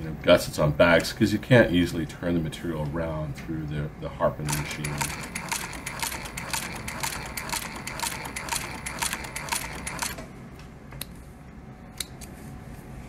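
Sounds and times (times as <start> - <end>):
sewing machine stitching: 4.5 - 10.3.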